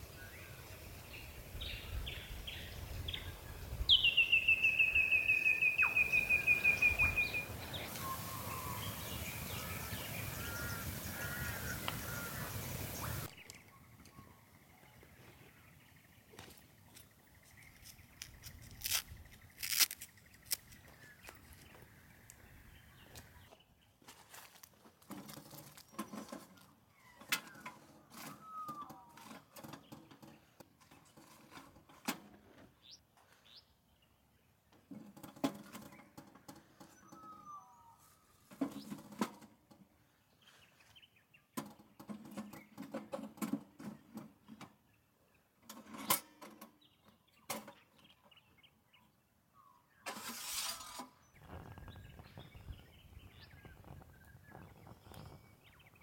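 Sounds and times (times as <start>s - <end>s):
bird chirps: 0.1s - 23.6s, 51.2s - 56.0s
camp gear being handled: 16.4s - 21.8s.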